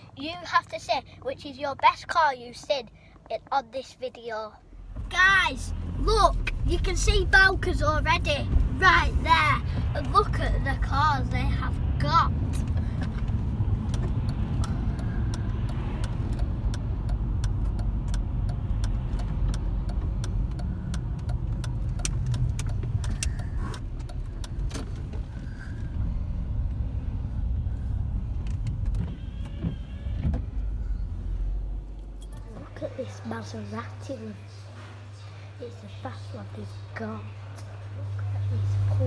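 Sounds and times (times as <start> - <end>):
car engine and wet tyres rumble: 0.0 - 34.1
raindrops ticking on windscreen: 12.6 - 25.5.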